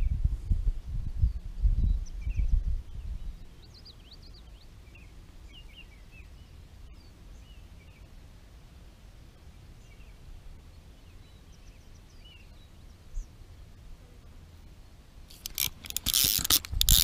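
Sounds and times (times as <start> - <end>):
low microphone rumble: 0.0 - 3.5.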